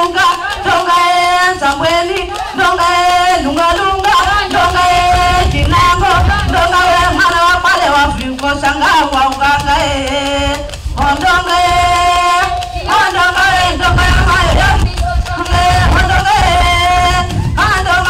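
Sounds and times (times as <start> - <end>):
person singing chant-like song: 0.0 - 18.0
low thuds: 4.2 - 8.6, 9.5 - 18.0.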